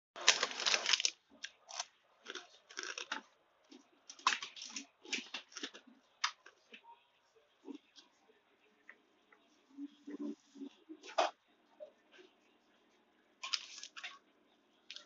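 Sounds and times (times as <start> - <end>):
person chewing crunchy food: 0.2 - 5.8.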